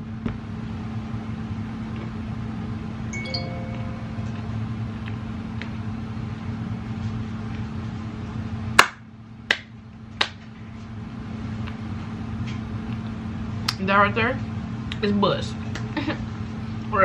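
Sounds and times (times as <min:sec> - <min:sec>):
low room hum: 0:00.0 - 0:17.0
finger snaps: 0:08.8 - 0:10.4.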